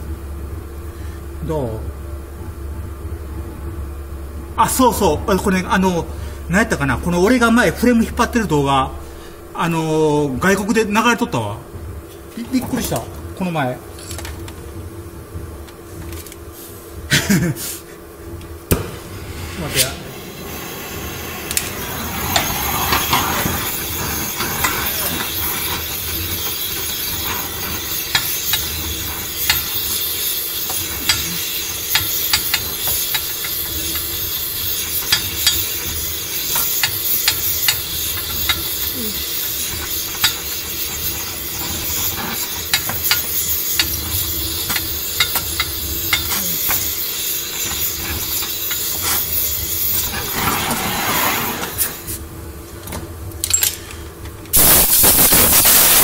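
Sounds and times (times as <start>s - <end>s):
gas torch flame hissing: 15.8s - 52.3s, 53.6s - 56.0s.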